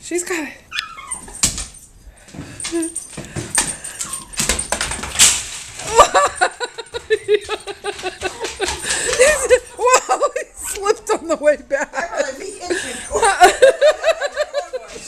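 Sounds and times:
dog claws scrabbling on floor: 1.2s - 6.0s, 6.9s - 9.6s.

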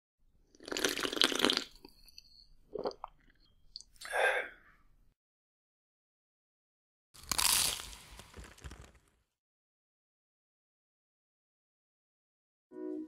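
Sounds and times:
person slurping hot drink: 0.6s - 1.9s.

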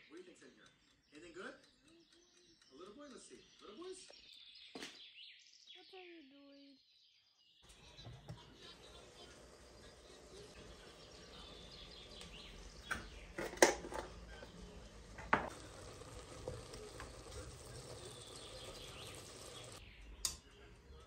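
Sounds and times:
faint sizzle: 7.6s - 21.0s
wooden spoon stirring in pot: 7.7s - 19.8s.

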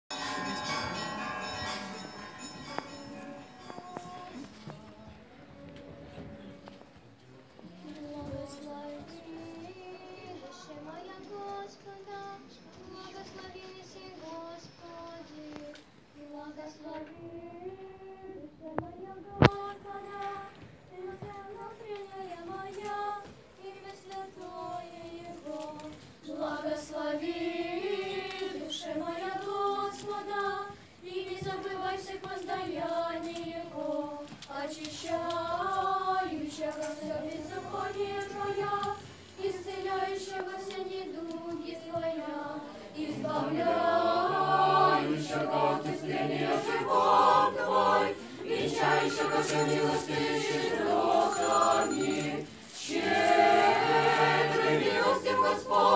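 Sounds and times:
choir singing chant in unison: 17.7s - 55.9s.

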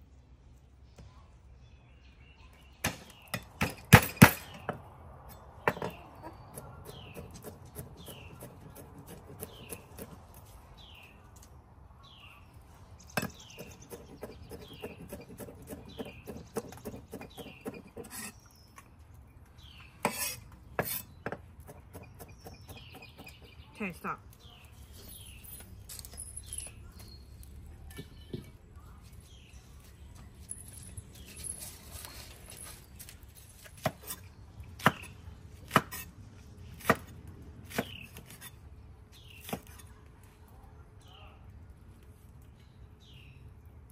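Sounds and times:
blade scraping across board: 13.9s - 18.4s, 20.0s - 21.2s.

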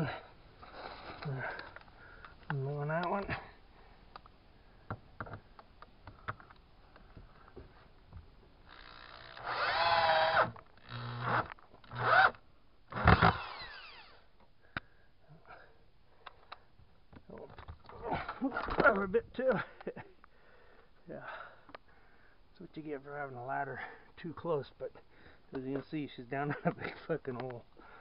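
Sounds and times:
small knocks and clicks: 4.9s - 8.9s
cordless drill driving screws: 8.7s - 14.2s.

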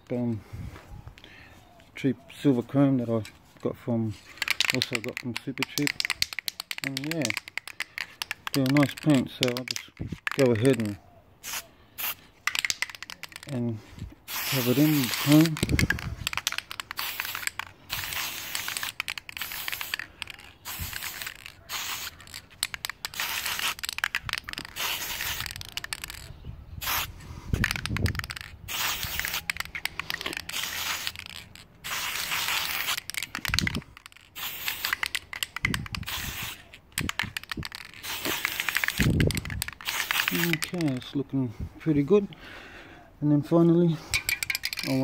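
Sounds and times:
spray can hissing: 11.4s - 13.4s, 14.3s - 40.8s.

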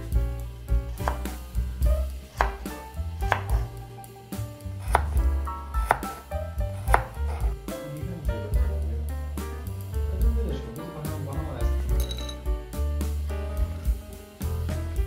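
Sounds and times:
background music: 0.0s - 15.0s
knife chopping on wooden board: 1.0s - 3.8s, 4.8s - 7.6s.

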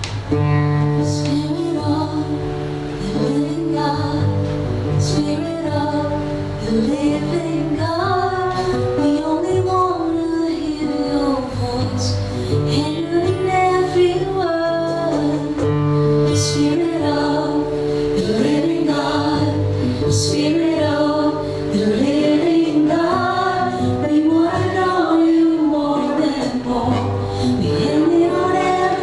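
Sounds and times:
woman singing: 0.9s - 29.0s.

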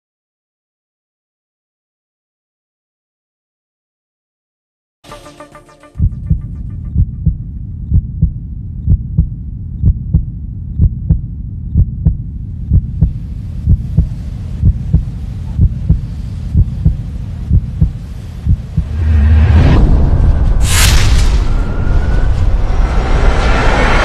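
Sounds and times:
low drone: 5.1s - 24.0s
deep heartbeat-like thumps: 6.0s - 20.6s.

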